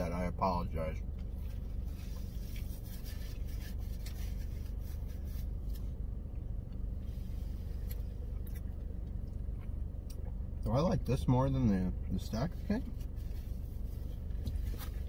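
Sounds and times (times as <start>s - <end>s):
low car cabin hum: 0.0s - 15.0s
paper napkin rustling: 1.4s - 5.9s, 12.9s - 15.0s
person chewing food: 7.8s - 10.4s.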